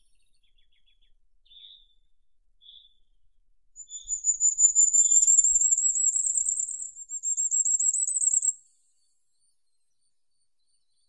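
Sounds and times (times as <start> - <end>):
bird singing high thin notes: 3.8 - 8.5.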